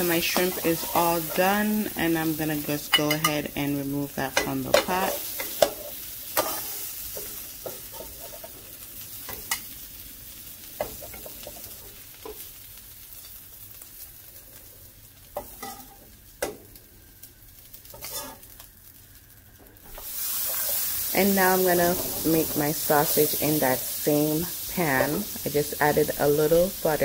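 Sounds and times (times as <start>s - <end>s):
shrimp sizzling in butter: 0.0s - 27.0s
spoon clinking and scraping pan: 2.9s - 3.4s, 4.4s - 8.6s, 15.4s - 16.0s, 18.0s - 18.4s.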